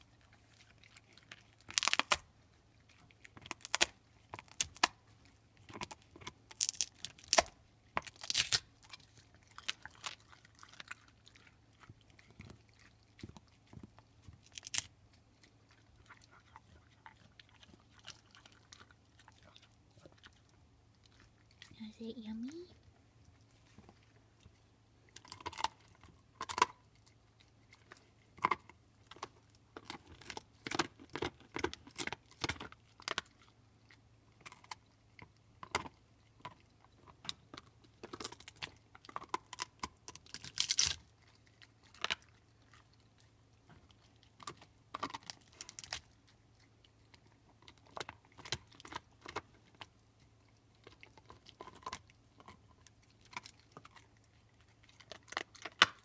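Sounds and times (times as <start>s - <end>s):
dog crunching bone: 0.0s - 21.7s, 22.4s - 56.0s.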